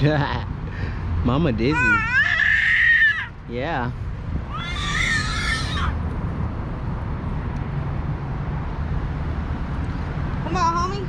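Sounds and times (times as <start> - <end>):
city background rumble: 0.0 - 11.0
toddler squealing: 1.6 - 3.3, 4.5 - 6.0.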